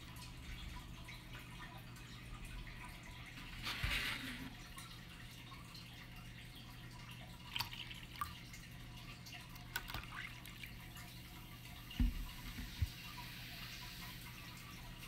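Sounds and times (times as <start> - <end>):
liquid trickling into cup: 0.0 - 15.0
jug thump on table: 12.0 - 12.7.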